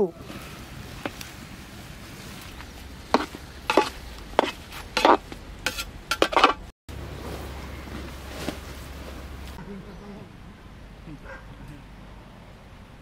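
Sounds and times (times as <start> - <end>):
metal spoon scraping a metal pot: 3.2 - 6.6.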